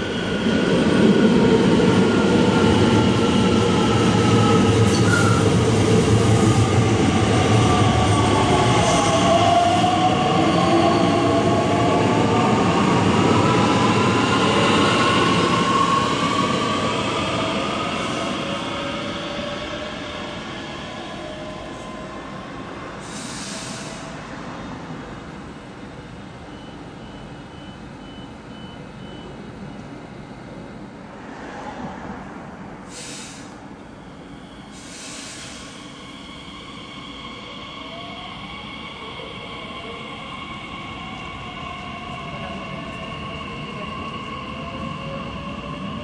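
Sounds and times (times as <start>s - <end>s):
brake air hiss: 23.0s - 24.1s, 32.9s - 33.6s, 34.7s - 35.9s
door warning beeps: 26.5s - 29.8s.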